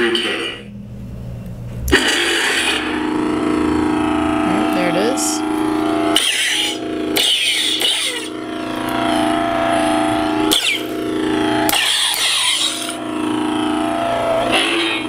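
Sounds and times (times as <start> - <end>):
electronic lightsaber hum: 0.0 - 15.0
lightsaber swing effects: 5.8 - 13.5.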